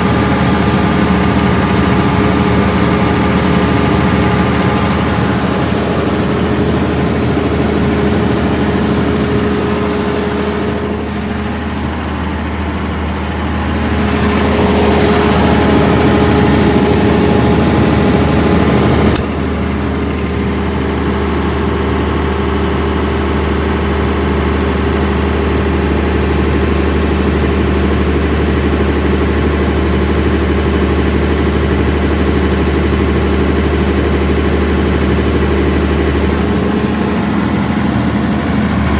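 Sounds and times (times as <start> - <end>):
diesel generator humming: 0.0 - 38.9
sharp click: 19.1 - 19.3.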